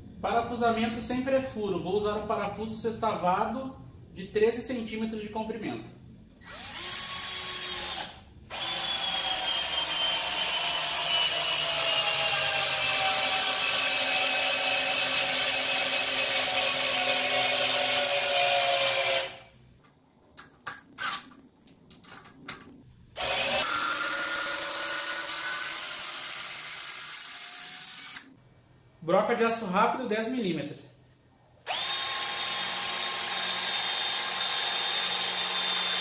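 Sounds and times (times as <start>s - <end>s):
cordless drill motor whine: 6.4s - 14.1s, 23.2s - 26.6s, 31.7s - 36.0s.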